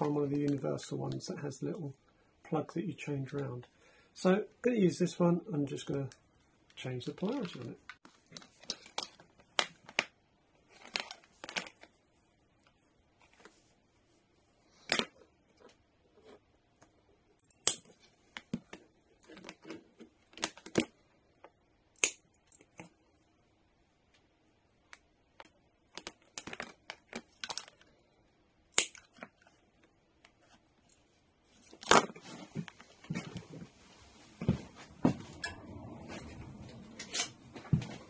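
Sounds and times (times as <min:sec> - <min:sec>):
cable handling noise: 0:05.9 - 0:11.9, 0:24.9 - 0:27.9
sharp clicks and snaps: 0:22.0 - 0:22.9, 0:28.7 - 0:29.3.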